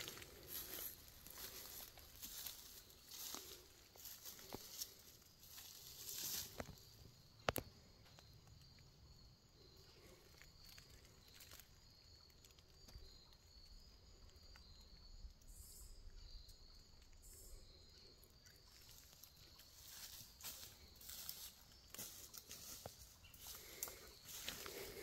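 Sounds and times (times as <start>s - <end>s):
footsteps in dry leaves: 0.0s - 6.8s, 19.7s - 25.0s
insects trilling: 0.0s - 25.0s.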